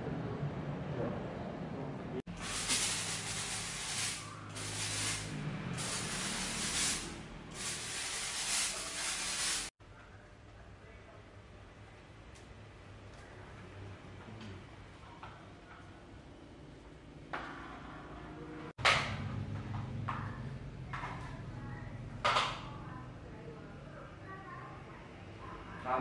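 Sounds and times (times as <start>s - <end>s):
sprayer hissing: 2.3s - 9.7s.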